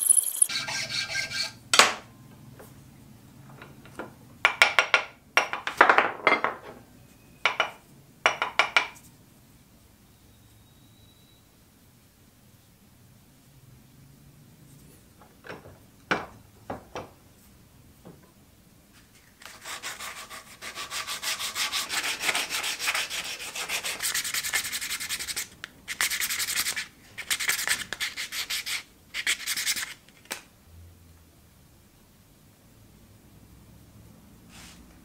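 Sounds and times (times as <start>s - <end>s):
sandpaper rubbing on wood: 19.5s - 29.9s.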